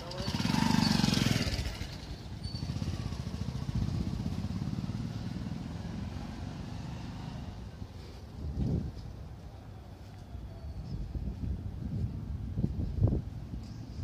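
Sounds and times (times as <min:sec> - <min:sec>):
motorcycle engine running: 0:00.0 - 0:06.3.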